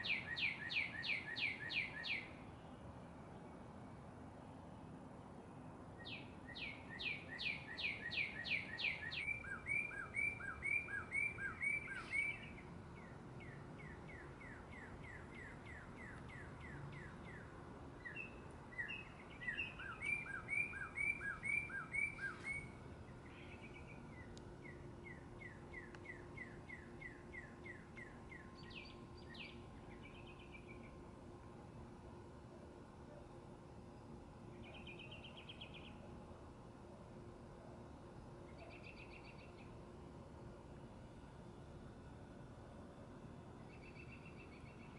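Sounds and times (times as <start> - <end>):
bird singing whistled phrases: 0.0 - 2.3, 6.0 - 17.4, 18.0 - 30.7
faint whistled bird notes: 0.0 - 2.5, 6.0 - 31.0, 38.5 - 39.7.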